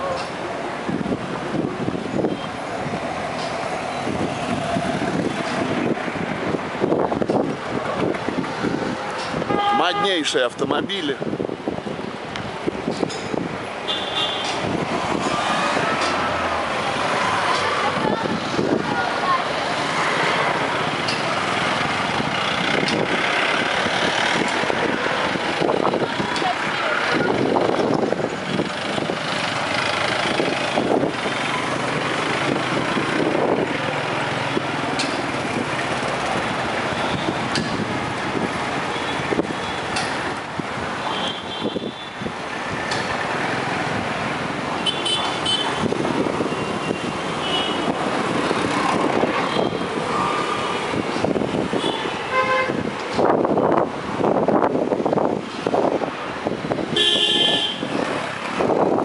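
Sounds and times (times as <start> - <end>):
motorbikes and cars passing: 0.0 - 59.0
vehicle horns honking: 9.4 - 10.4, 13.9 - 14.6, 41.1 - 42.2, 44.8 - 45.8, 46.6 - 48.0, 51.7 - 52.8, 57.0 - 58.0.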